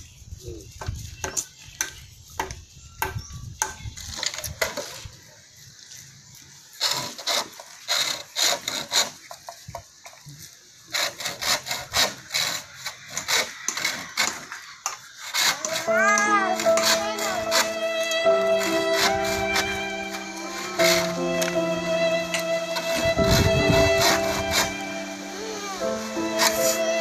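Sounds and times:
hand saw cutting bamboo: 6.7 - 9.8, 10.8 - 27.0.

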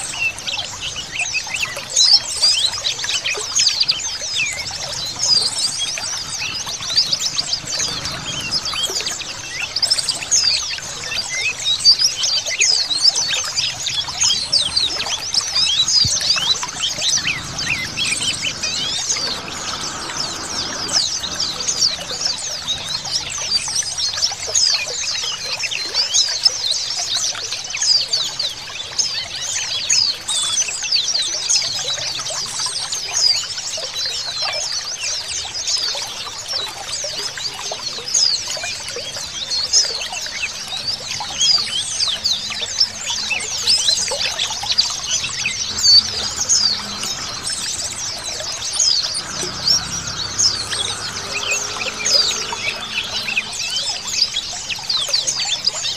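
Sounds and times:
small birds chirping: 0.0 - 25.2, 38.2 - 55.9
water trickling: 0.0 - 55.9.

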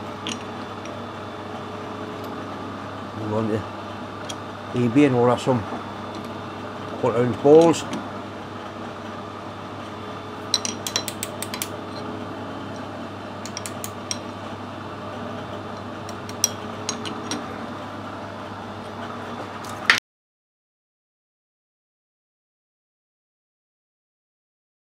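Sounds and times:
workshop hum: 0.0 - 20.0
metal ring clinking: 10.5 - 12.0.

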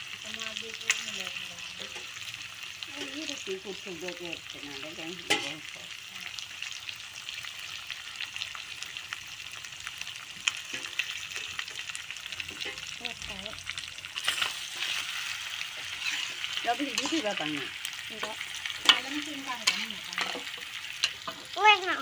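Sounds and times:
meat sizzling in a wok: 0.0 - 22.0
metal spatula scraping pan: 4.8 - 5.6, 14.2 - 21.6.

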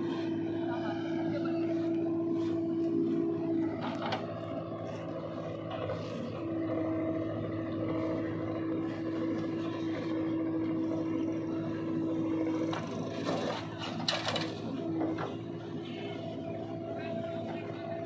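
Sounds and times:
constant whine: 0.0 - 18.0
diesel engines running: 0.0 - 18.0.

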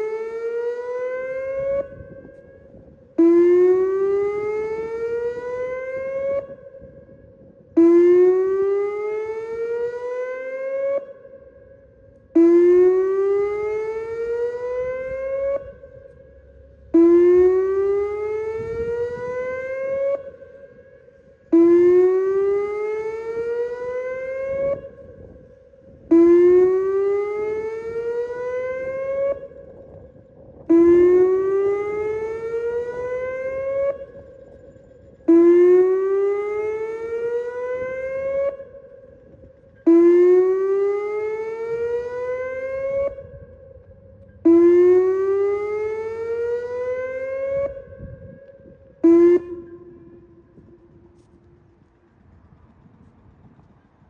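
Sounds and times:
tornado siren whooping: 0.0 - 53.8.

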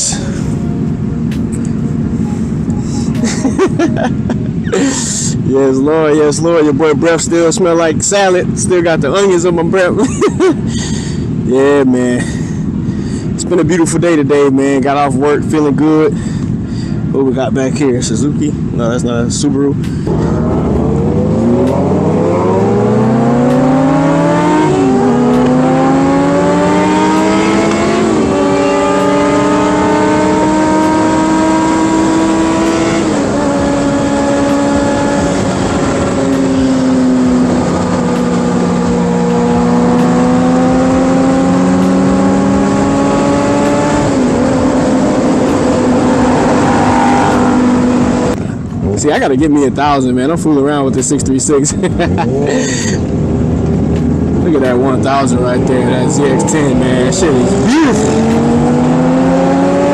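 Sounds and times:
motorcycle engine accelerating: 18.5 - 48.9, 51.8 - 59.9.

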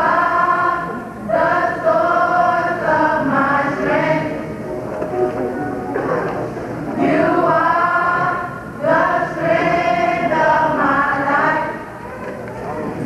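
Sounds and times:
children's choir singing: 0.0 - 4.6, 6.9 - 12.0.

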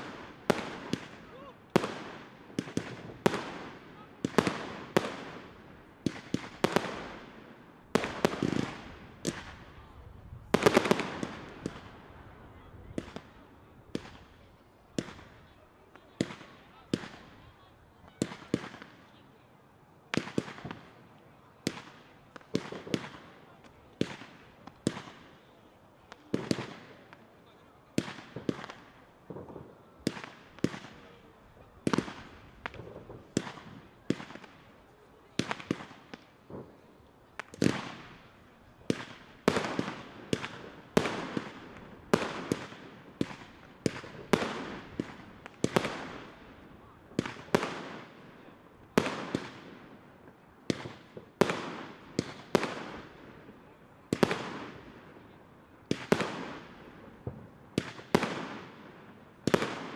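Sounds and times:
fireworks bursting with sharp bangs: 0.0 - 19.3, 20.0 - 59.9
flurry of firework pops: 10.4 - 12.0, 21.7 - 25.3, 27.9 - 31.2, 31.8 - 34.7, 35.3 - 46.4, 47.2 - 48.2, 50.7 - 53.0.

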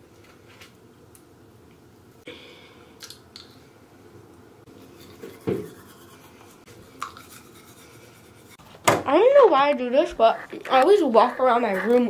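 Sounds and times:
toothbrush scrubbing teeth: 4.7 - 8.6, 9.6 - 12.0.

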